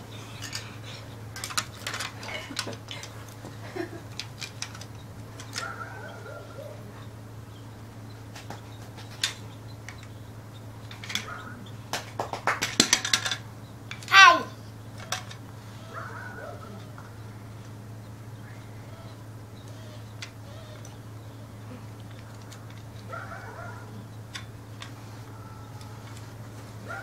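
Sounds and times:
steady low hum: 0:00.0 - 0:27.0
plastic toy bricks clicking: 0:01.4 - 0:03.2, 0:04.1 - 0:05.7, 0:12.6 - 0:14.2.

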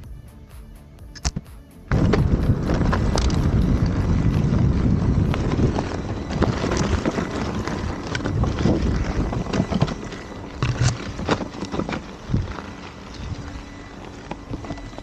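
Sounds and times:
wind rushing on microphone: 0:01.9 - 0:13.8
tyre crunching over stones: 0:01.9 - 0:15.0.

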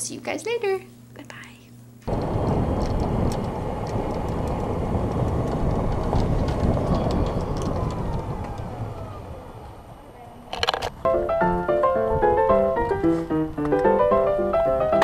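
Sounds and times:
faint whine sliding down: 0:02.0 - 0:10.7
golf cart rumble and rattle: 0:02.1 - 0:13.0.

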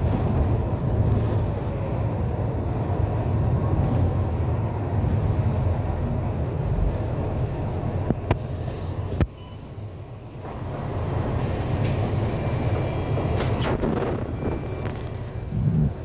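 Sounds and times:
bus engine and road rumble: 0:00.0 - 0:16.0.

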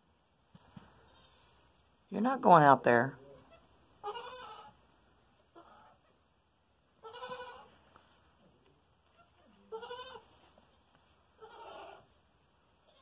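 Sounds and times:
goat bleating: 0:03.5 - 0:04.8, 0:07.0 - 0:07.8, 0:09.1 - 0:10.4, 0:11.4 - 0:12.1.

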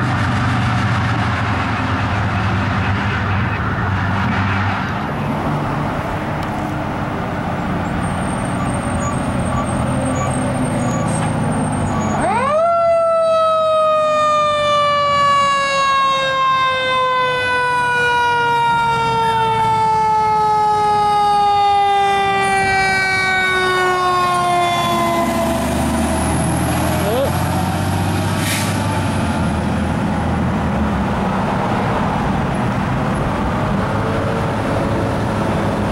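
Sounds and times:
fire truck engine: 0:00.0 - 0:35.9
mechanical siren wailing: 0:08.0 - 0:26.0.

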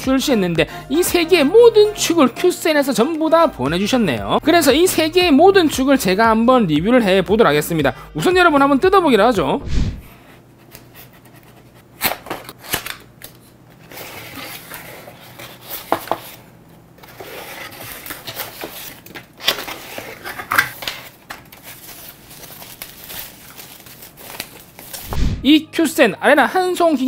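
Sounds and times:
paper and plastic rustling: 0:10.6 - 0:25.1.

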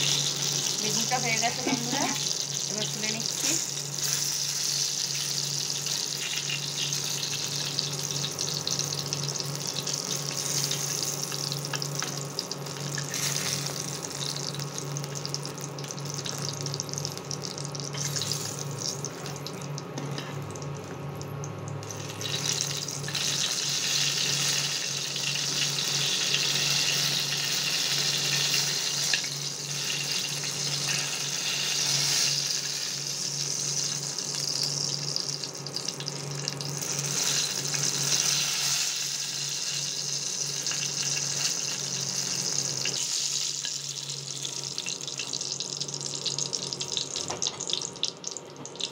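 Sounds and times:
eggplant sizzling in hot oil: 0:00.0 - 0:48.9.

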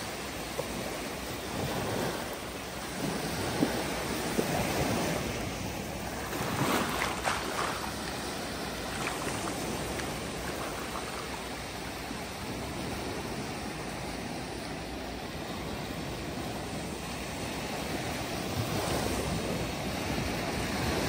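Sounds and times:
waves washing up a sandy shore: 0:00.0 - 0:21.0.

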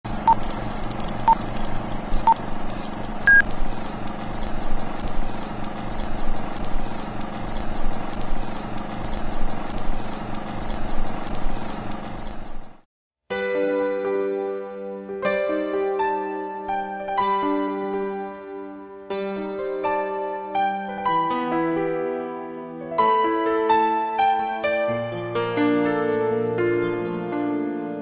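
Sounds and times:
film projector whirring and clattering: 0:00.1 - 0:12.8.

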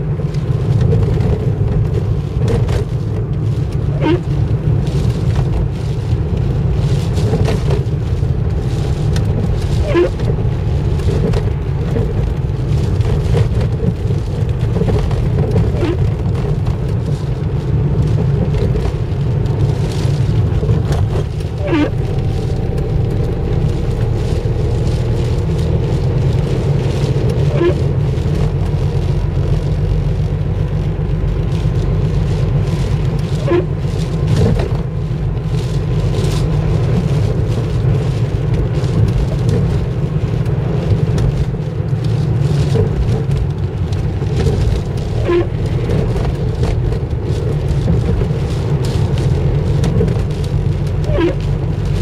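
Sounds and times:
car engine and tyre noise: 0:00.0 - 0:52.0
short squeak: 0:09.8 - 0:10.3, 0:21.4 - 0:24.2, 0:51.1 - 0:51.4.

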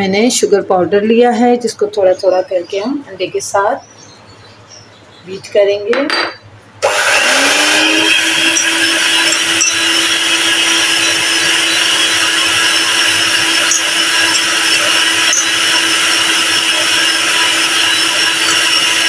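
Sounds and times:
electric hand mixer whisking: 0:06.8 - 0:19.0.

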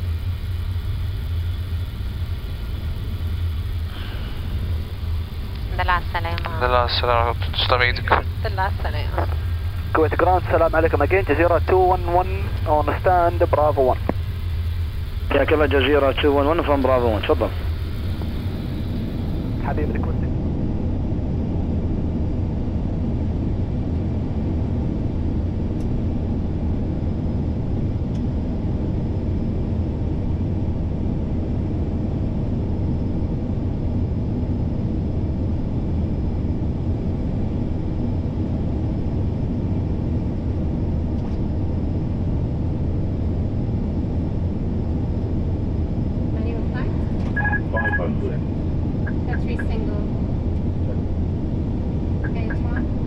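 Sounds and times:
airflow and engine rumble: 0:00.0 - 0:53.0.

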